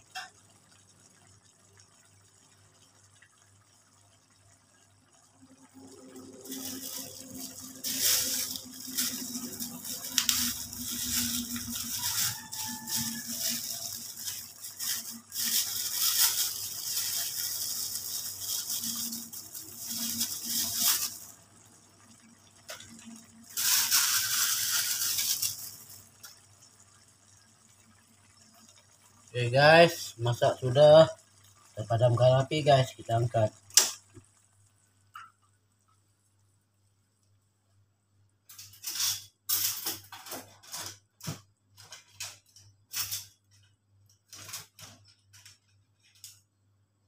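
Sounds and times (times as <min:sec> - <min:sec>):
water running from a tap: 0:05.8 - 0:26.7.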